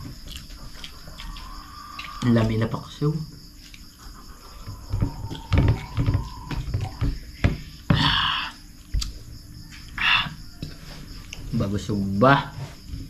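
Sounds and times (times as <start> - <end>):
crickets chirping: 0.0 - 13.0
low knocks and bumps: 4.7 - 8.0.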